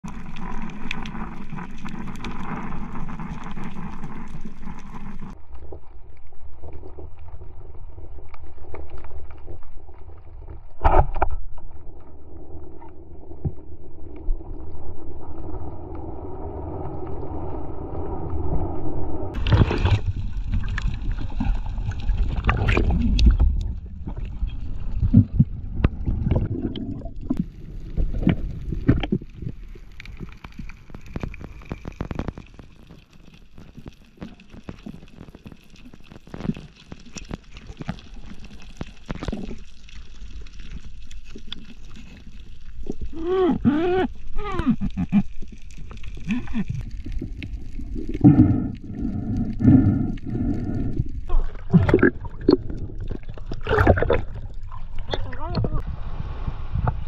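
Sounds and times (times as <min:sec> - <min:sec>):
underwater clicks and knocks: 0:28.1 - 0:29.6
muffled underwater noise: 0:54.9 - 0:55.9.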